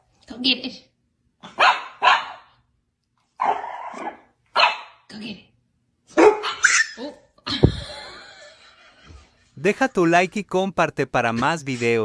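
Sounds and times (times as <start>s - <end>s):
dog barking: 1.4s - 2.6s, 3.4s - 5.0s, 6.1s - 7.2s
sharp thump: 7.6s - 7.8s.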